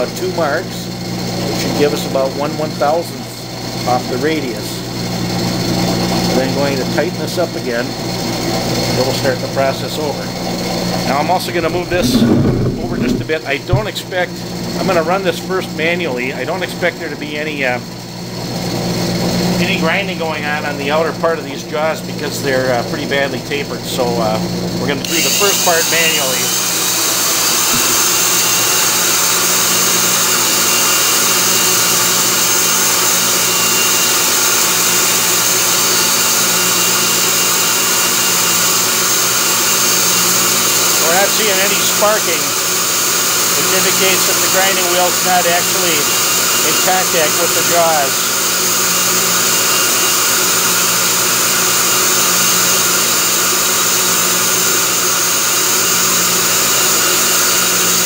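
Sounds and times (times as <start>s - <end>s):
grinder motor high whine: 11.5s - 13.9s, 25.0s - 32.0s, 43.8s - 58.0s
lathe turning: 11.5s - 13.9s.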